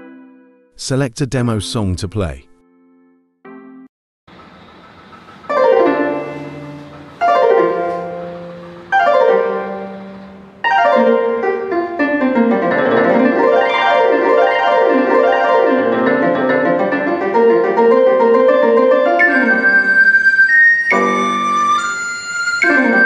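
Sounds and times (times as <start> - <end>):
piano chords: 2.2 - 23.0
flowing piano playing: 5.4 - 23.0.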